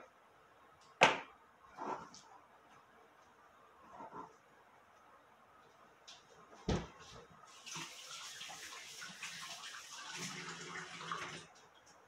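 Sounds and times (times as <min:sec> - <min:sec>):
tap water running into sink: 0:07.5 - 0:11.5.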